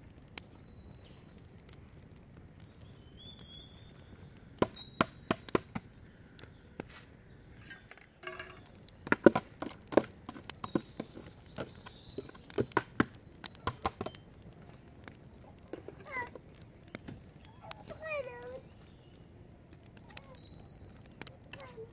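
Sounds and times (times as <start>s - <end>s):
metal spoon clinking on pot: 7.7s - 8.6s.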